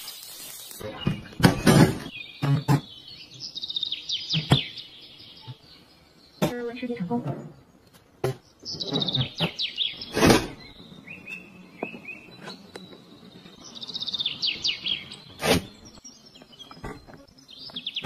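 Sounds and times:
bird chirps: 0.0s - 18.0s
songbird trilling: 8.5s - 12.6s, 13.6s - 16.8s.

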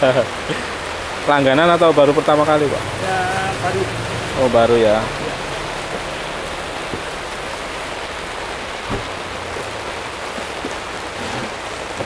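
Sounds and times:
heavy rain: 0.0s - 12.0s.

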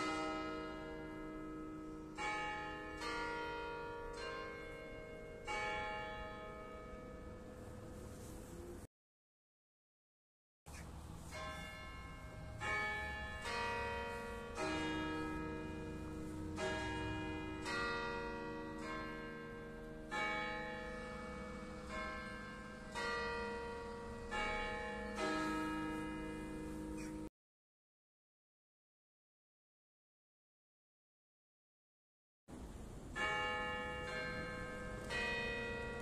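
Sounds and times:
church bells striking a melody: 0.0s - 8.4s, 11.1s - 27.3s, 33.1s - 36.0s.

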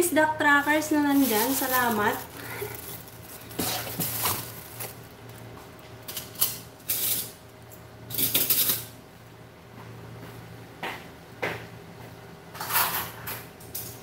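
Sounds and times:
faint room hum: 0.0s - 14.0s
items rustling and clattering: 0.6s - 8.9s.

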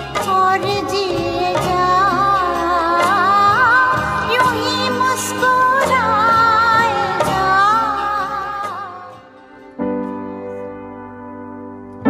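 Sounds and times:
woman singing: 0.0s - 9.5s
instrumental accompaniment: 0.0s - 12.0s.

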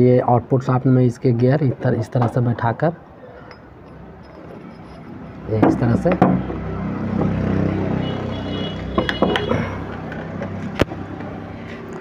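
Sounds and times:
metal gear parts clinking: 3.5s - 5.2s.

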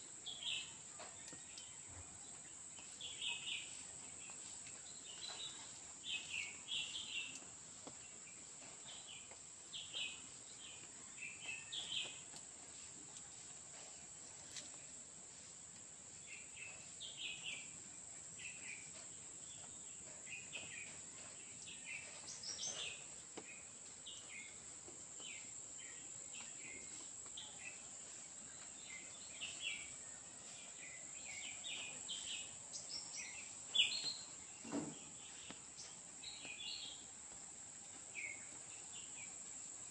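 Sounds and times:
bird chirps: 25.2s - 37.1s.

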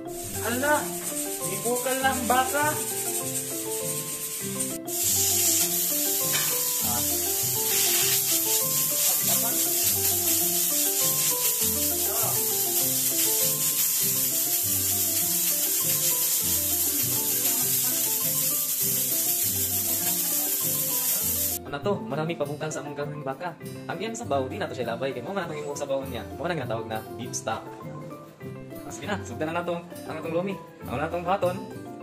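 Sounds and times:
steady high hiss: 0.0s - 21.6s.

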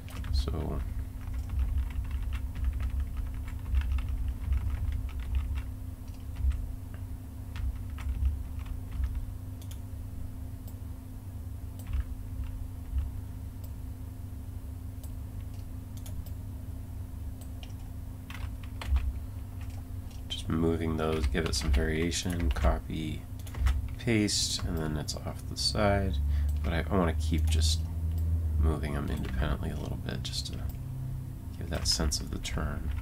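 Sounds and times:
steady low hum: 0.0s - 33.0s
keyboard and mouse clicks: 7.6s - 9.8s, 11.8s - 13.8s, 15.0s - 16.4s, 21.1s - 22.8s, 23.4s - 24.0s, 29.0s - 29.9s.

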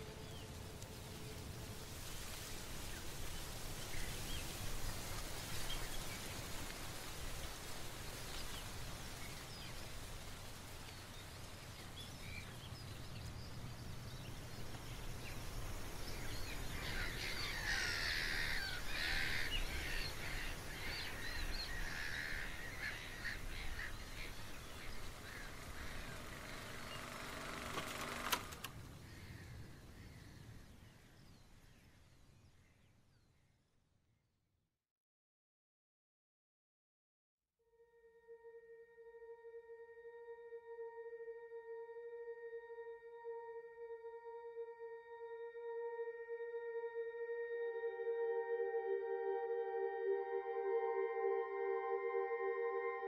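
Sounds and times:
birds calling: 10.9s - 30.8s.

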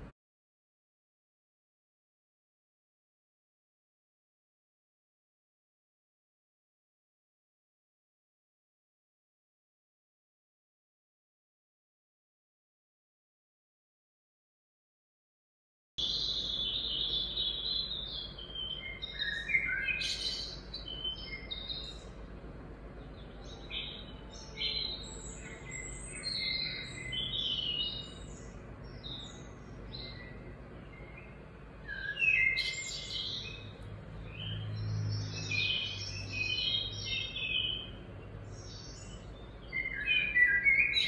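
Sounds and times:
birds chirping and calling: 16.0s - 41.0s
low background hum: 16.0s - 41.0s.

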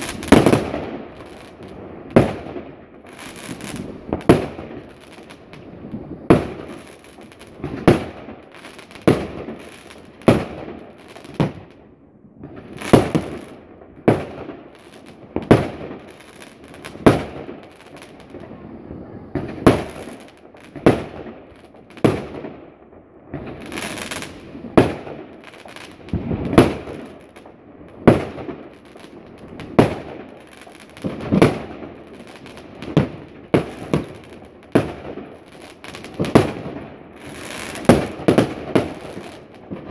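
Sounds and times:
fireworks hissing: 0.0s - 0.7s, 23.6s - 27.1s
fireworks bangs: 0.0s - 39.9s.

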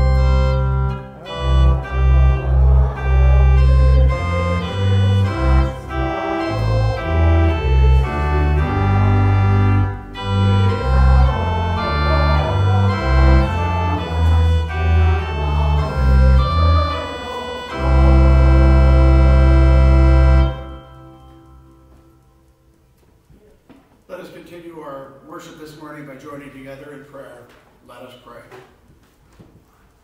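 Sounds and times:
organ playing held chords: 0.0s - 23.0s.

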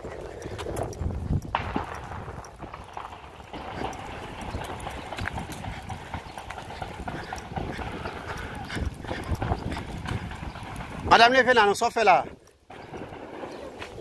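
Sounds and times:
footsteps on brick paving: 0.0s - 14.0s.

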